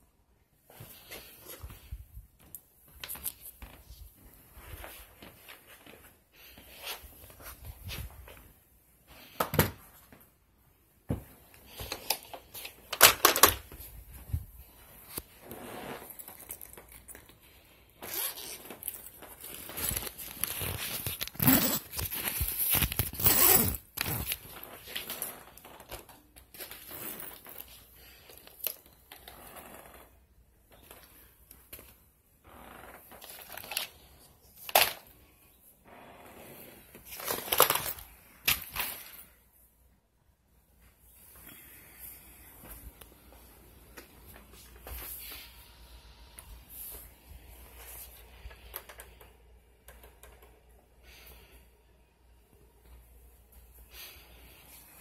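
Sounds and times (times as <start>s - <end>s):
rustling of handled objects: 0.6s - 29.7s, 33.1s - 35.8s, 36.8s - 39.8s.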